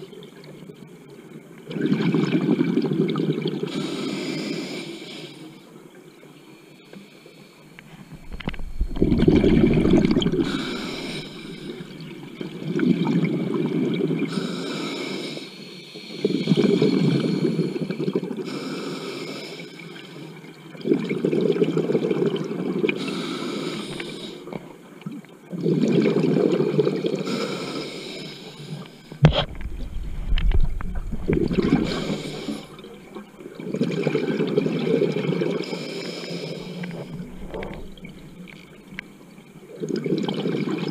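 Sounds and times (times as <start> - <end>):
regulator inhale hiss: 3.7 - 5.7, 9.8 - 12.0, 14.3 - 20.4, 23.0 - 24.6, 27.2 - 29.6, 31.4 - 33.2, 35.6 - 38.6
exhaust bubbles gushing: 7.9 - 13.0, 29.2 - 35.1, 36.8 - 39.0.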